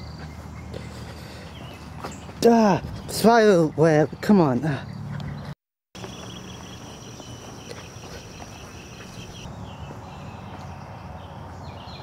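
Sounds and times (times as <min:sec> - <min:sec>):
footsteps on dirt: 0:00.0 - 0:03.4, 0:04.2 - 0:11.2
insects chirping: 0:06.0 - 0:11.2.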